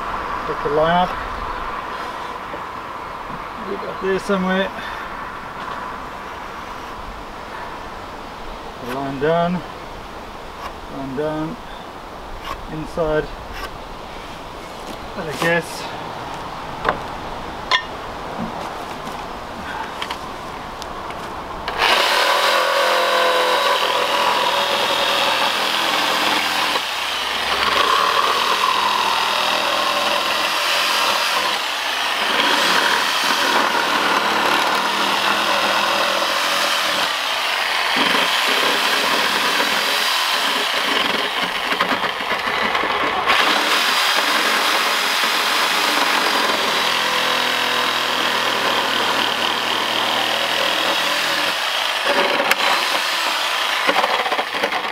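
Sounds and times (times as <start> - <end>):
electric saw cutting wood: 21.6 - 54.9.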